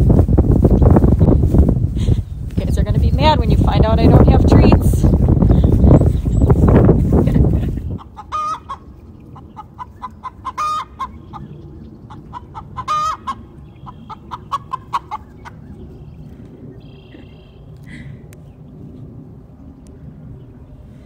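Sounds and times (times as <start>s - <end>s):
low rumble on microphone: 0.0s - 10.3s
chickens clucking: 5.4s - 15.8s.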